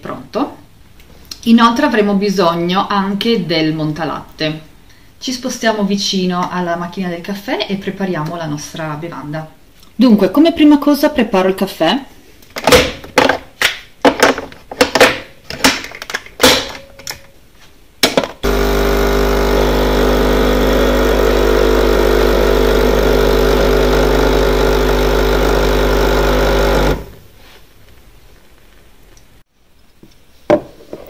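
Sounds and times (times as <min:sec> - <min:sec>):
coffee machine pump humming: 0:18.4 - 0:27.3.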